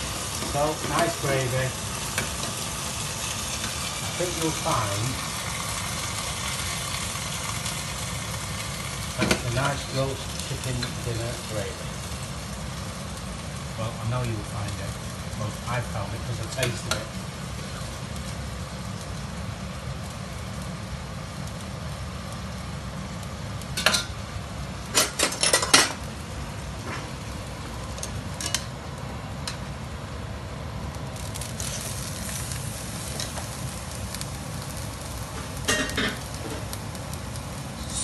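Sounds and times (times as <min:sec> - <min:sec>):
broccoli sizzling in a pan: 0:00.0 - 0:38.0
pans and utensils clattering: 0:24.9 - 0:26.0, 0:35.7 - 0:36.2.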